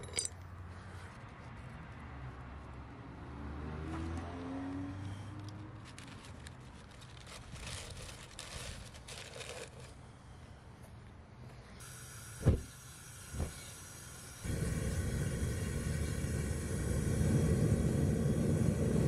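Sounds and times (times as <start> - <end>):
paper crinkling and rustling: 5.6 - 10.0
gas burner igniting whump: 12.4 - 12.7, 14.5 - 19.0
small thump: 12.4 - 12.7.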